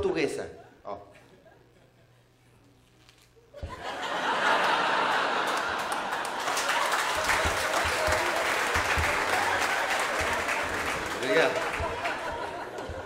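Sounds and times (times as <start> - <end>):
audience applause: 3.9 - 13.0.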